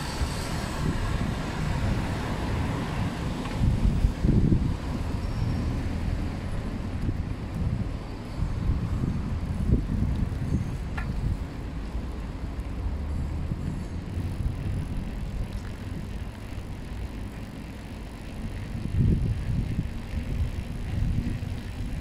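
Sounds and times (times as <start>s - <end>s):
wind buffeting the microphone: 0.0s - 5.6s, 6.3s - 11.7s, 13.3s - 16.7s, 18.3s - 22.0s
bicycle tyre and road noise: 0.0s - 22.0s.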